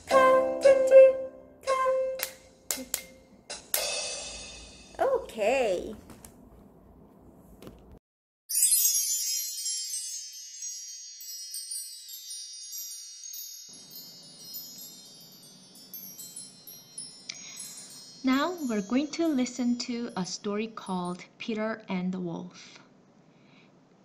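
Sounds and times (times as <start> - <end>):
sparkling chime cascade: 8.5 - 21.2.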